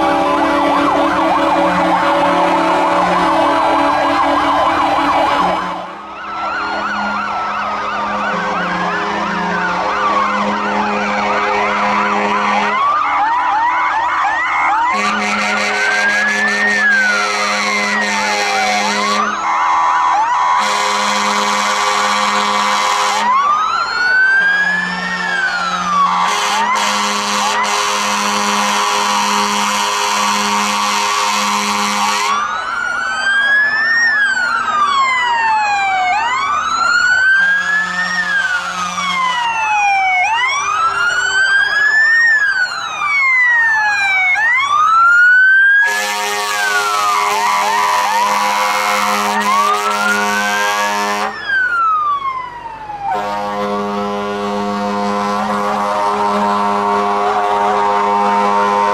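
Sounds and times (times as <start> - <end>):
long horn blasts: 0.0 - 6.0, 10.4 - 12.8, 14.9 - 19.4, 20.6 - 23.4, 26.2 - 32.4, 45.8 - 51.4, 53.1 - 58.9
fire engine sirens wailing: 0.0 - 58.9.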